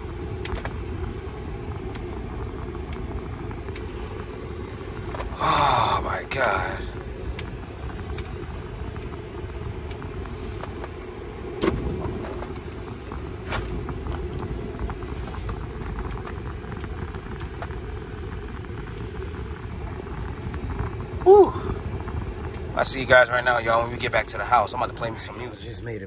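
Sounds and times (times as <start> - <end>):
truck engine and road rumble: 0.0 - 26.0.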